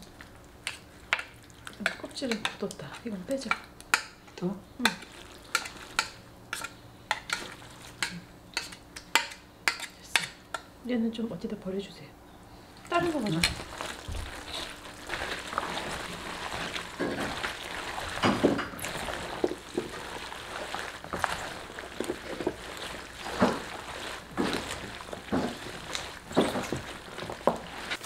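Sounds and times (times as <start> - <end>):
gloved hands squishing wet filling: 4.8 - 6.7, 12.8 - 28.0.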